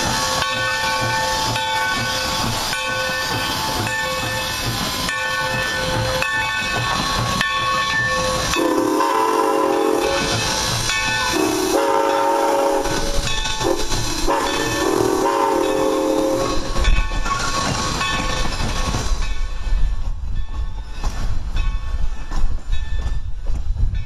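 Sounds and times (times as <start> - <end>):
train coaches rumbling past: 0.0 - 24.0
steam locomotive whistle blasts: 8.4 - 10.6, 11.3 - 16.8.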